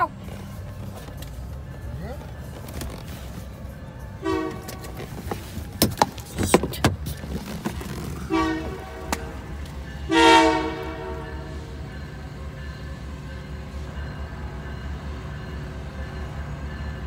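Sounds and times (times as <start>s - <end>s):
locomotive air horn blasts: 4.2s - 5.1s, 8.2s - 11.8s
car door opening: 4.6s - 8.2s.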